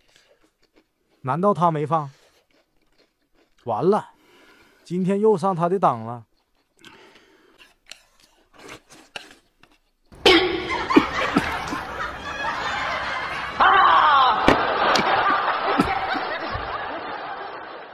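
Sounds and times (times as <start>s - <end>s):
loud laughter: 10.2s - 17.9s.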